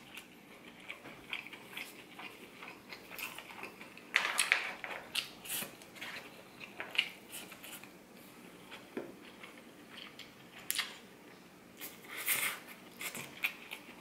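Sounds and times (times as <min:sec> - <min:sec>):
biting and chewing: 0:00.0 - 0:07.7.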